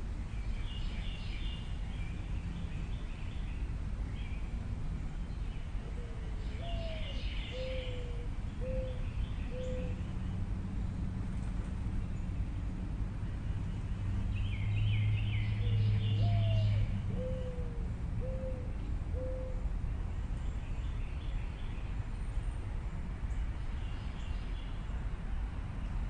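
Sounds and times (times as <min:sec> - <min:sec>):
low outdoor rumble: 0:00.0 - 0:26.0
small birds chirping: 0:00.3 - 0:10.4, 0:13.3 - 0:17.6
bird cooing: 0:05.9 - 0:10.0, 0:16.2 - 0:19.6.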